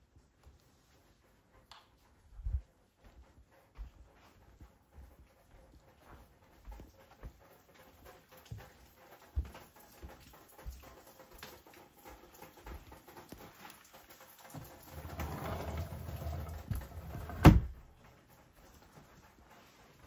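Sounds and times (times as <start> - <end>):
soft footsteps: 0.0 - 10.8
wooden sliding door rumbling: 14.6 - 17.9.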